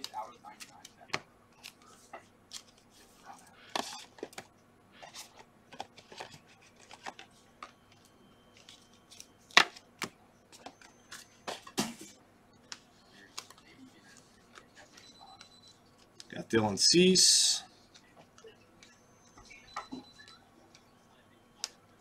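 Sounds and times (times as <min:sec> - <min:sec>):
trading cards flipping and sliding: 0:00.0 - 0:14.7.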